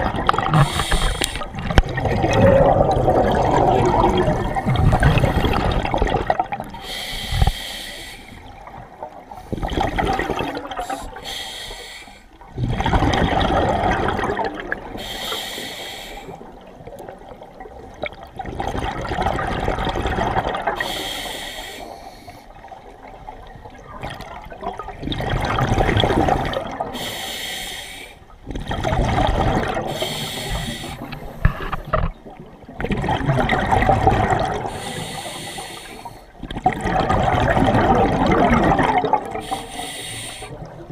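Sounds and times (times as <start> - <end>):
exhaled bubbles rushing: 0.0 - 6.9, 8.4 - 11.2, 12.4 - 15.1, 16.4 - 20.8, 22.8 - 27.0, 28.4 - 35.0, 36.4 - 39.7
regulator inhale hiss: 0.6 - 1.5, 6.8 - 8.5, 11.0 - 12.3, 14.9 - 16.4, 20.8 - 22.5, 27.0 - 28.2, 29.9 - 31.6, 34.7 - 36.4, 39.4 - 40.7.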